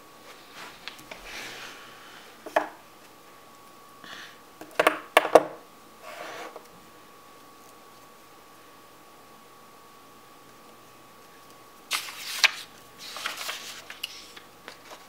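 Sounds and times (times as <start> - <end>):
hand rustling sheets of card: 11.9 - 15.0.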